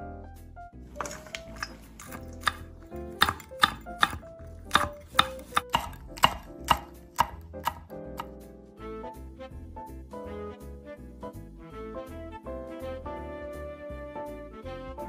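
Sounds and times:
background music: 0.0s - 15.0s
knife chopping on wooden board: 1.0s - 8.4s.

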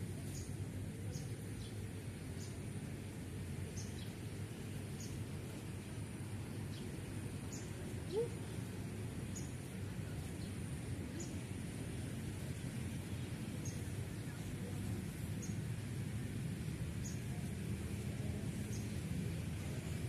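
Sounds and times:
low background noise: 0.0s - 20.0s
small bird chirping: 4.9s - 5.2s.

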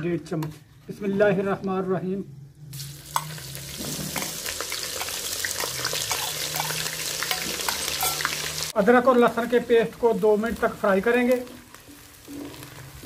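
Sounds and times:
paste sizzling in hot oil: 2.7s - 13.0s.

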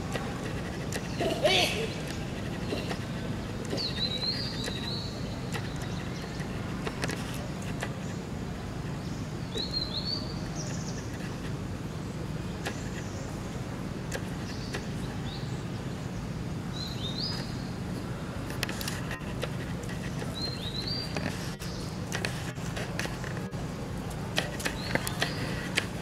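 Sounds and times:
low background hum: 0.0s - 26.0s
bird chirping: 2.1s - 6.6s, 9.0s - 11.3s, 16.7s - 17.8s, 19.2s - 22.3s.

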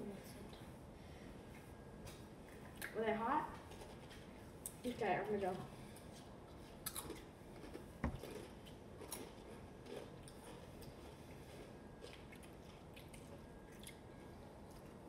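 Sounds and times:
people crunching chips: 6.7s - 15.0s.

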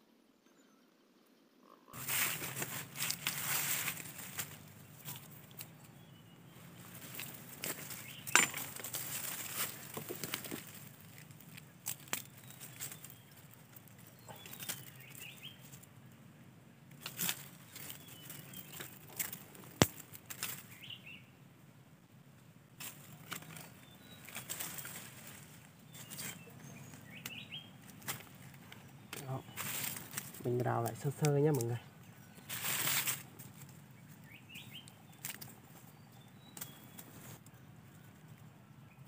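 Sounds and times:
twig cracking: 1.9s - 5.9s, 6.9s - 15.9s, 16.9s - 20.8s, 22.8s - 31.7s, 32.5s - 33.8s, 34.6s - 35.6s
dry leaves and twigs rustling: 1.9s - 21.2s, 22.3s - 38.6s.

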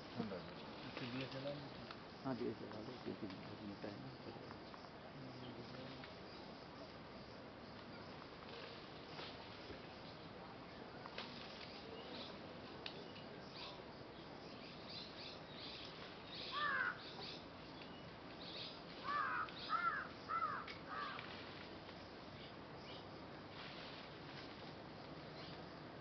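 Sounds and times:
small birds chirping: 7.7s - 26.0s
crow cawing: 16.5s - 17.0s, 19.0s - 21.3s.

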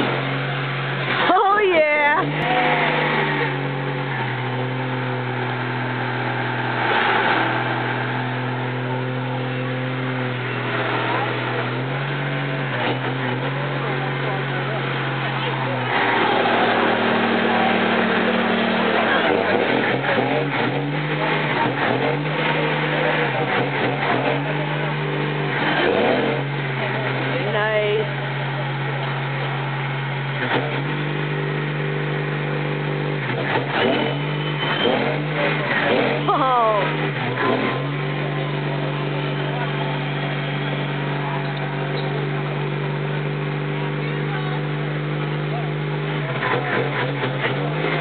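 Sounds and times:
diesel engine at high revs: 0.0s - 48.0s
tyres spinning on pavement: 0.0s - 48.0s
rushing noise: 2.2s - 13.0s.

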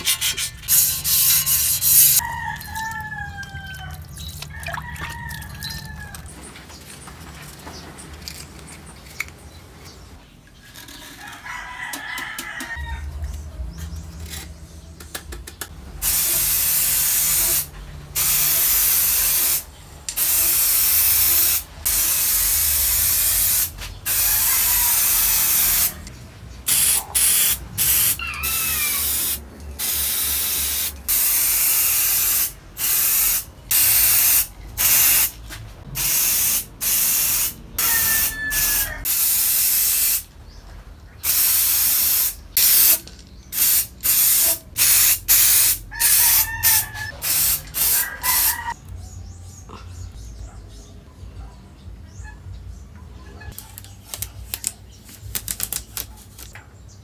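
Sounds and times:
spray can hissing: 0.6s - 2.2s, 16.0s - 26.0s, 26.7s - 35.4s, 36.0s - 40.3s, 41.2s - 48.8s.

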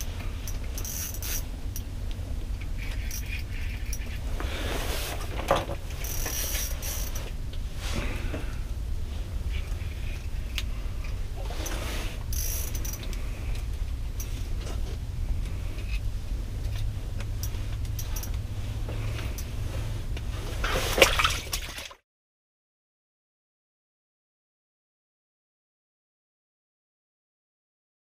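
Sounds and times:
steady low rumble: 0.0s - 21.9s
fishing reel clicking: 0.4s - 1.9s, 2.7s - 4.2s, 6.0s - 7.2s, 12.3s - 13.6s.

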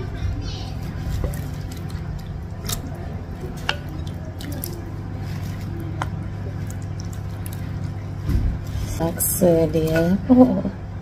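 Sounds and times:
broth dripping and sloshing: 0.0s - 10.0s.

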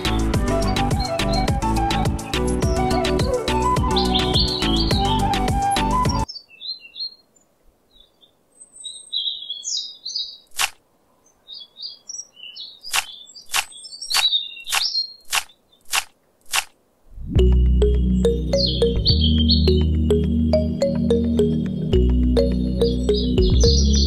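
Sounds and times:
small birds chirping: 0.0s - 16.7s, 17.4s - 24.0s
sharp clicks: 10.5s - 10.8s, 12.9s - 16.8s.

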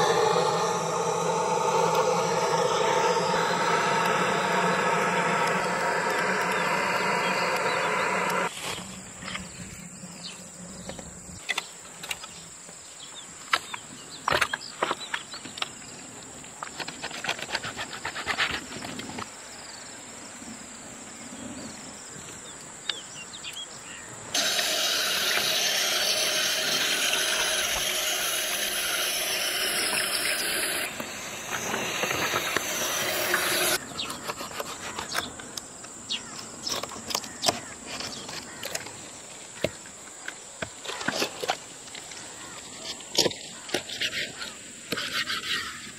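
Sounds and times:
loud steady hiss: 0.0s - 8.6s, 24.3s - 33.8s.

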